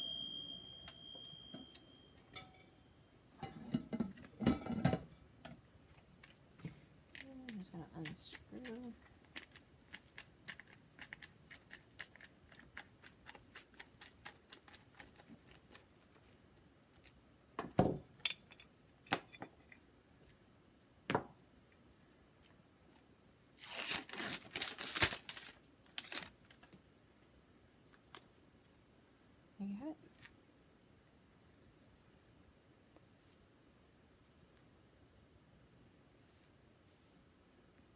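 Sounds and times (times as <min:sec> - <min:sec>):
paper crinkling and tearing: 0:23.6 - 0:26.7.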